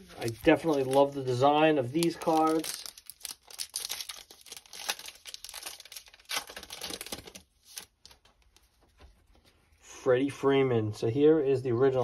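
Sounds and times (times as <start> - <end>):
plastic wrapper tearing and crinkling: 0.0 - 8.6.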